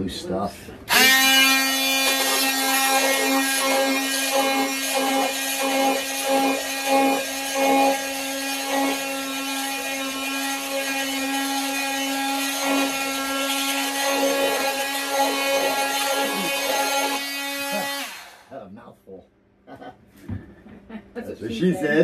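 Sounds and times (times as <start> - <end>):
handheld power tool running: 0.9 - 18.5.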